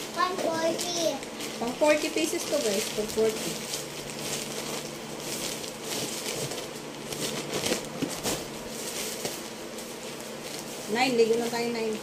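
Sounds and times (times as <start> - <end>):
plastic bags rustling and crinkling: 0.0 - 12.0.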